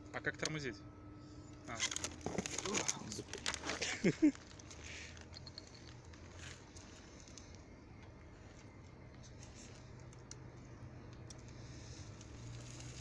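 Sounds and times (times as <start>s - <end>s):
low steady hum: 0.0s - 13.0s
tyres rolling over gravel: 1.7s - 7.6s, 11.4s - 13.0s.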